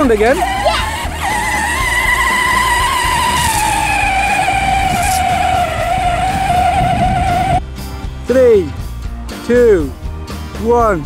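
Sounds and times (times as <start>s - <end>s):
electric motor whine: 0.0s - 7.6s.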